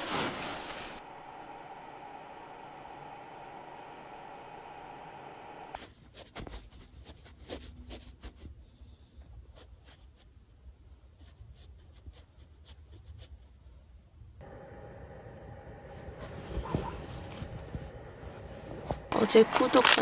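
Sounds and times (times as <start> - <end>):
dog paws scratching bedding: 0.0 - 1.0, 15.9 - 20.0
low steady hum: 0.0 - 5.8, 14.3 - 20.0.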